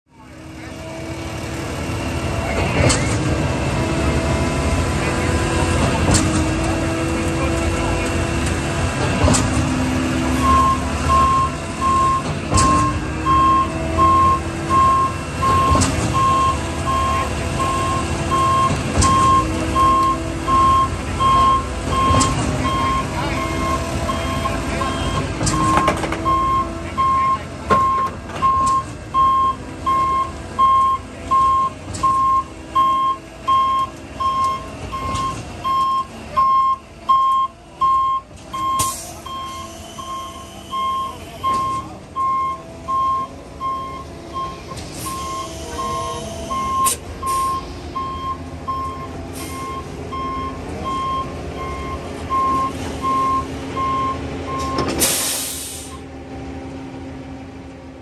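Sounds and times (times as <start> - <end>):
diesel engine running: 0.1 - 58.0
reversing beeper: 9.8 - 56.0
air-brake hiss: 44.8 - 47.9, 55.0 - 56.0
air hisses: 55.0 - 56.0.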